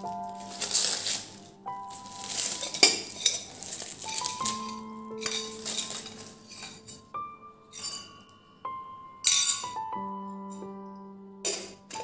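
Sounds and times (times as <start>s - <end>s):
metal jar and lid clinking: 0.0s - 7.1s, 7.7s - 8.2s, 9.2s - 9.8s
soft background keyboard music: 0.0s - 12.0s.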